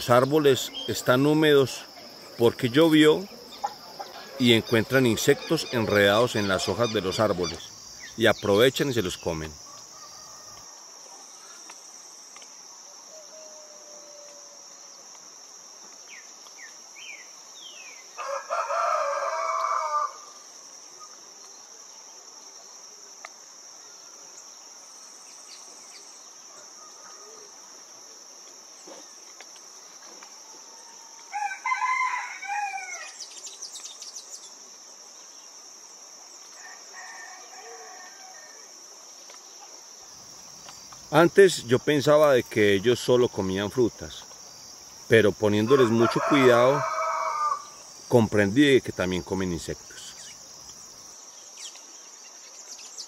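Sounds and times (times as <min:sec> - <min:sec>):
high-pitched insect chorus: 0:00.0 - 0:53.0
rooster crowing: 0:09.6 - 0:10.9, 0:13.1 - 0:14.9, 0:18.1 - 0:20.4, 0:30.4 - 0:33.2, 0:36.5 - 0:38.8, 0:45.5 - 0:47.9
loud bird call: 0:45.6 - 0:47.8.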